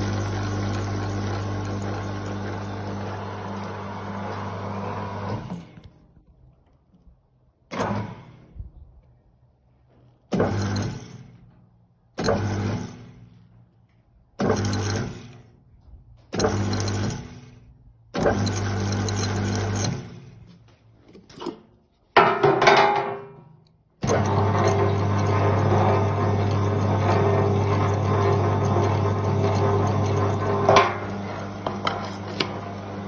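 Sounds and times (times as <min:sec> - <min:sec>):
meat grinder motor humming: 0:00.0 - 0:05.8, 0:16.4 - 0:17.3, 0:18.2 - 0:20.2, 0:24.0 - 0:33.0.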